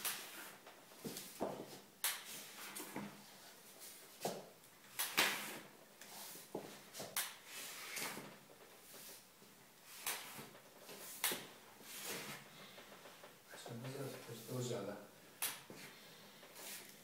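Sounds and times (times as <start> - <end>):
footsteps with leg braces on wood: 0.9 - 2.0.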